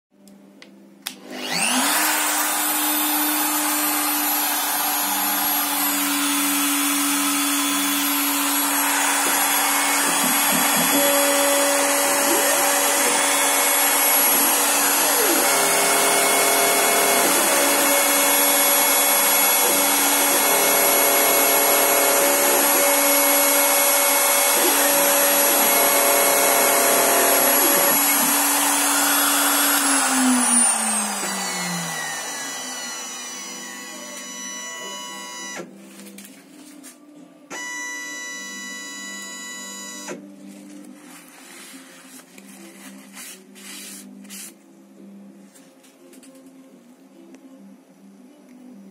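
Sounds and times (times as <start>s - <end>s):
rotary tool spindle whine: 1.3s - 35.7s.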